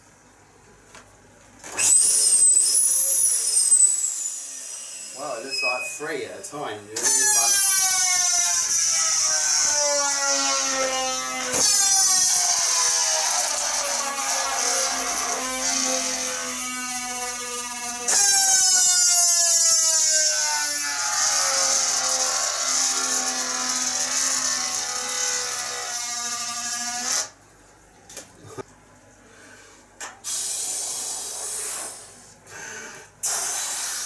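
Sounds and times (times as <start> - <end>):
balloon squealing as air rushes out: 1.7 - 6.2, 7.0 - 20.5, 30.2 - 32.2, 33.2 - 34.0.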